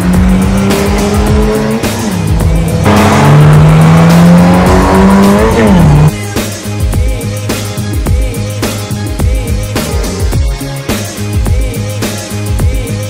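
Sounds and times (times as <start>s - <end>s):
car engine accelerating: 0.0s - 6.1s
music: 0.0s - 13.0s.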